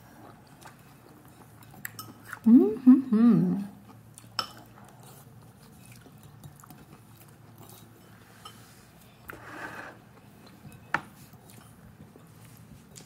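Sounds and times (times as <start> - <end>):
chewing and mouth sounds: 0.0 - 2.5, 3.8 - 8.0.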